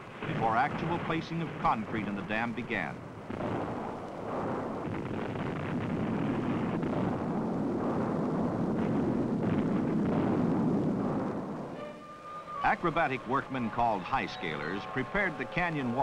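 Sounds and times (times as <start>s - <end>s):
blast rumble and falling rock: 3.3s - 11.8s.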